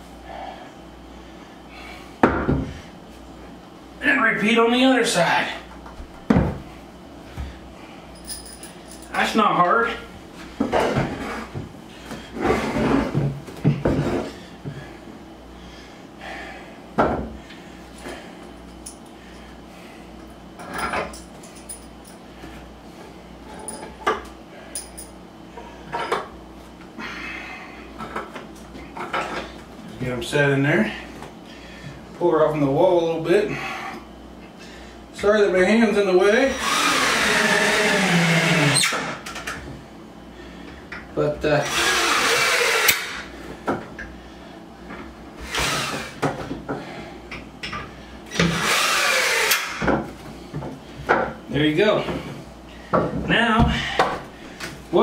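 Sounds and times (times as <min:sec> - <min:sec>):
power drill driving screws: 0:36.5 - 0:39.2, 0:41.6 - 0:43.3, 0:45.4 - 0:46.2, 0:48.3 - 0:49.8.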